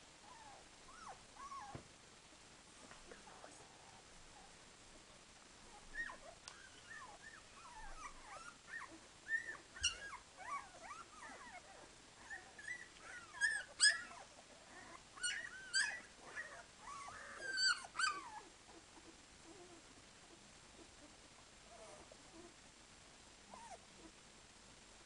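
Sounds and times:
puppies squeaking and whimpering: 5.9 - 11.6, 12.2 - 19.1.

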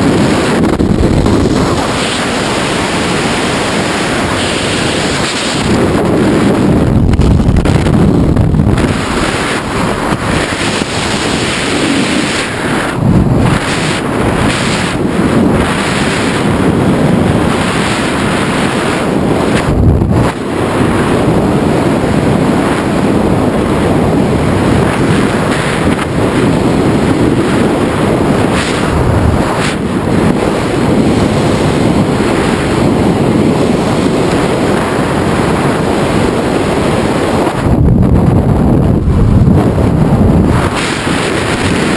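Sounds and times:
freefall wind blasting microphone: 0.0 - 41.9.

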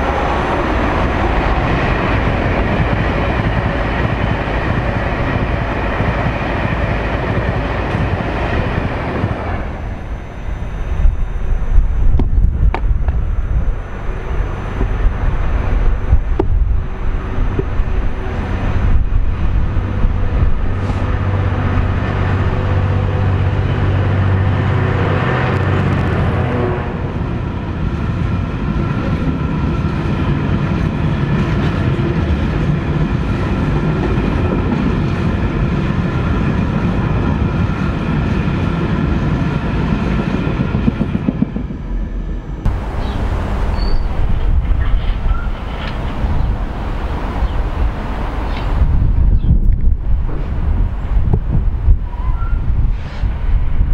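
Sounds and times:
diesel locomotive engine passing: 0.0 - 53.9
electric train running away: 0.0 - 53.9.

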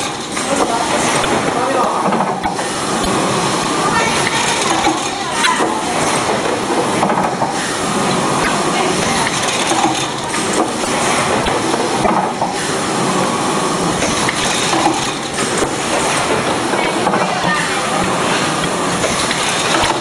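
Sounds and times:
packing machine clatter and hiss: 0.0 - 20.0
machine clicks: 4.1 - 7.6, 8.4 - 12.8, 14.0 - 17.3, 18.0 - 20.0.

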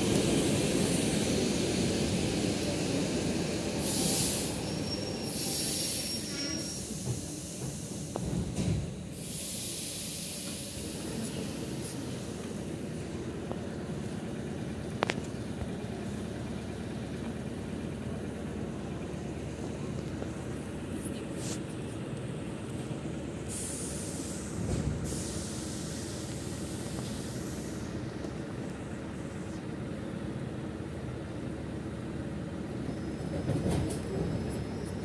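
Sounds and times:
train rumbling to a stop: 0.0 - 35.0
air hissing: 0.3 - 12.6, 23.5 - 28.0.

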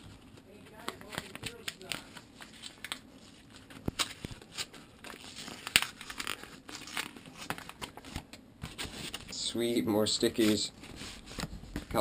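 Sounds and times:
paper envelope tearing: 0.8 - 7.7
loud paper crack: 0.8 - 9.3.

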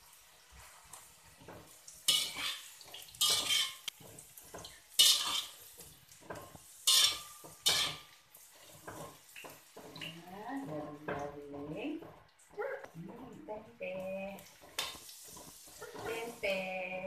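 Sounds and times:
metal spatula scraping a wok: 1.5 - 4.3, 4.9 - 9.2.

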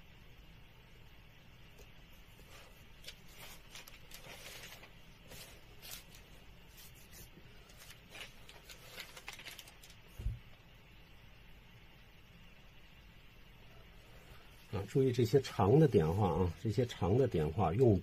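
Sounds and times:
paper rustling and scraping: 2.3 - 10.4.

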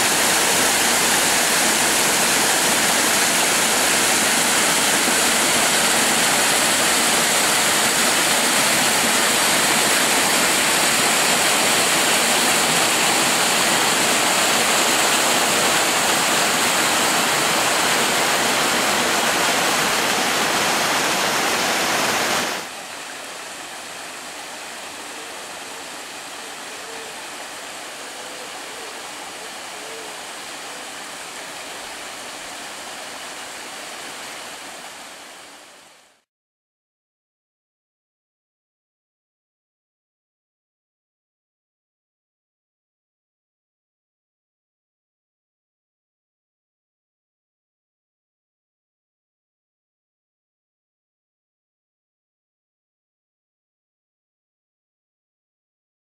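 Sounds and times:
stream splashing down rocks: 0.0 - 36.2
small waterfall rushing: 0.0 - 36.3.

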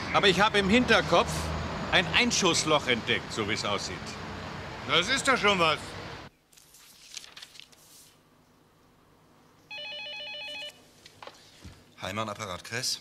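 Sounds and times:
telephone ringing: 9.7 - 10.8.

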